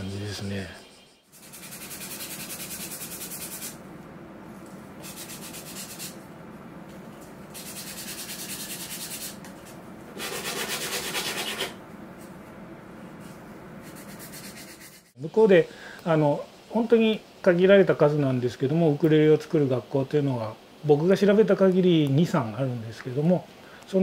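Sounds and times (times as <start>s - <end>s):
hand sanding wood: 1.3s - 3.8s, 5.0s - 6.2s, 7.6s - 9.4s, 10.2s - 11.8s, 13.8s - 15.2s.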